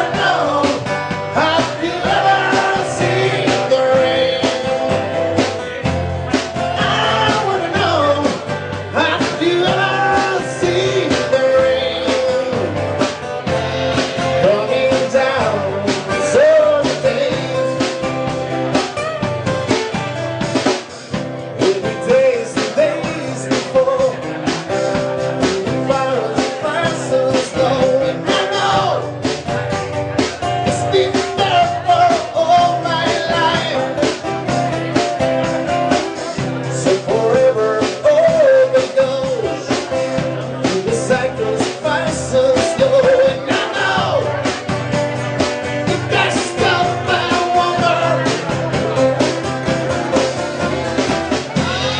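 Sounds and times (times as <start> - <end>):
man singing into microphone: 0.0 - 5.8, 6.6 - 13.1, 14.2 - 18.0, 21.6 - 29.4, 30.4 - 34.2, 36.1 - 44.7, 45.7 - 49.0
drum kit: 0.0 - 51.9
strummed acoustic guitars: 0.0 - 51.9.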